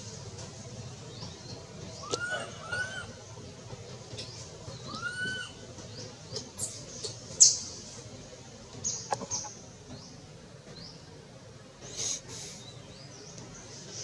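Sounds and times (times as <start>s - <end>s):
infant monkey squeaking and crying: 2.0s - 3.2s, 4.9s - 5.6s.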